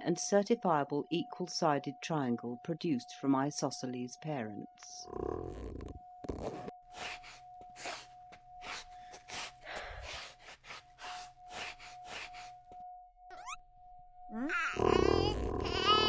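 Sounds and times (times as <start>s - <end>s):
person panting: 6.9s - 12.6s.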